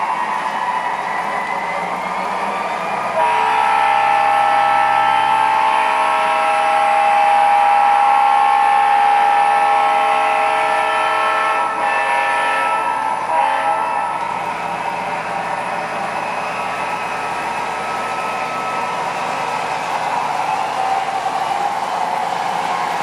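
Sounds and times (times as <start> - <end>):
model train rumbling on track: 0.0 - 23.0
multi-chime air horn blast: 3.0 - 19.6.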